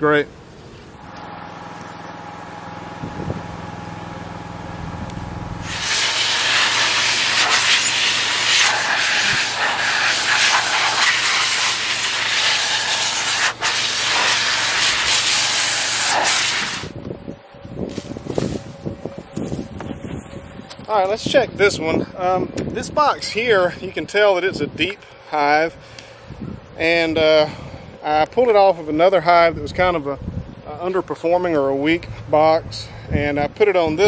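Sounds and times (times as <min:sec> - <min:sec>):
blower running: 0:00.6 - 0:21.6
loud rushing air blast: 0:05.6 - 0:17.0.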